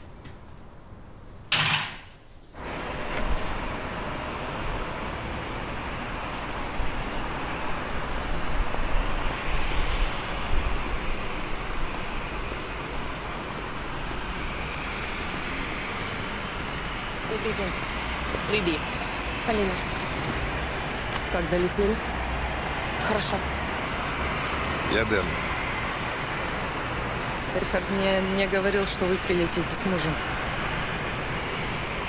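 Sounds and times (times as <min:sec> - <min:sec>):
traffic noise with low rumble: 0:00.0 - 0:32.0
front door banging shut: 0:01.5 - 0:02.2.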